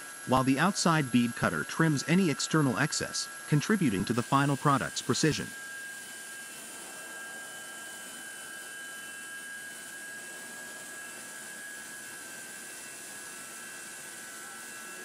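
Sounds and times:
machinery high whine: 0:00.0 - 0:15.0.

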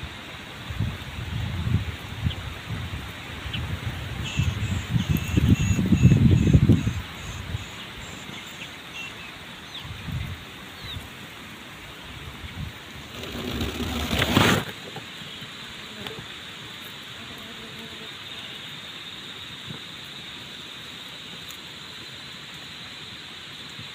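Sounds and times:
dry grass rustling: 0:13.0 - 0:14.8.

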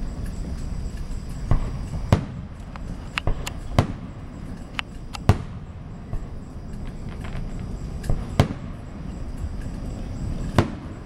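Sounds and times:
fireworks bangs and cracks: 0:00.0 - 0:11.0.

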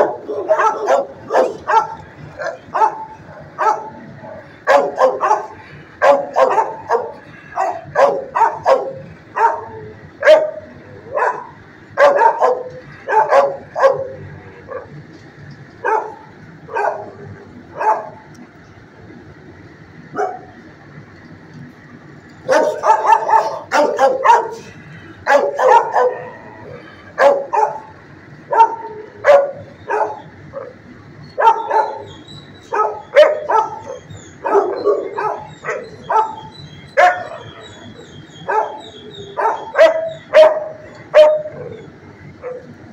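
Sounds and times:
dogs barking: 0:00.0 - 0:15.1, 0:15.7 - 0:18.3, 0:20.1 - 0:20.6, 0:22.4 - 0:42.8.

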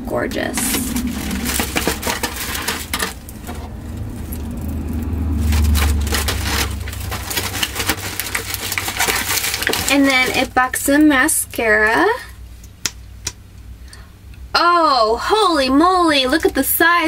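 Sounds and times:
low rumble: 0:00.0 - 0:10.4
plastic containers clattering: 0:00.4 - 0:04.4, 0:05.3 - 0:10.6.

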